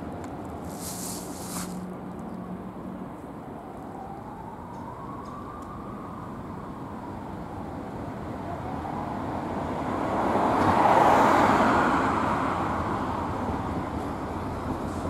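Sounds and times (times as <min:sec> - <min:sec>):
vehicle passing by: 0:08.9 - 0:13.2.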